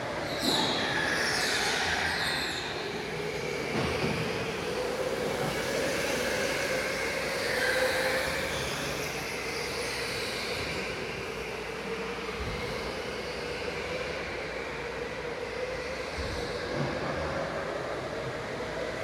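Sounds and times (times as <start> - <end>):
electric go-kart motor whine: 0.0 - 19.0.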